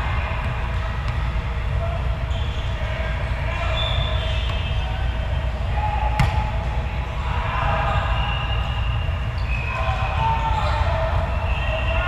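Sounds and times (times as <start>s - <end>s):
sports hall din: 0.0s - 12.0s
volleyball smack: 6.2s - 6.5s.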